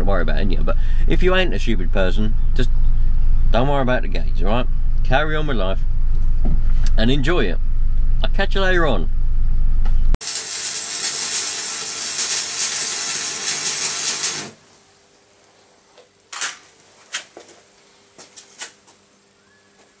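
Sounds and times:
welding arc crackling and hissing: 10.2s - 15.6s.

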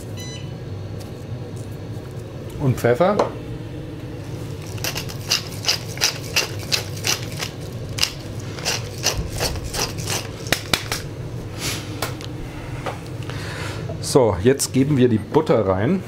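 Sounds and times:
pepper mill grinding: 4.6s - 11.0s.

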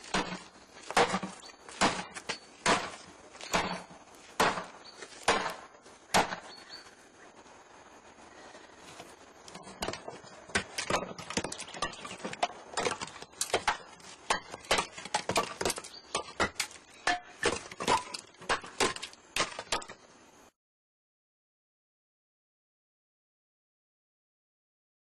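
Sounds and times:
firewood knocking together: 0.0s - 5.6s, 9.5s - 20.0s.

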